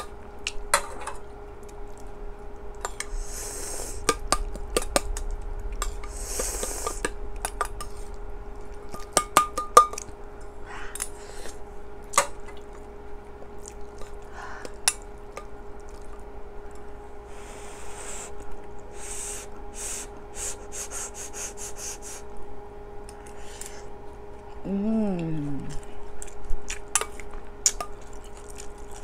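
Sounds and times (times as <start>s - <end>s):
steady low hum: 0.0s - 29.0s
chewing and sipping mouth sounds: 1.3s - 10.2s, 10.9s - 16.9s, 25.2s - 29.0s.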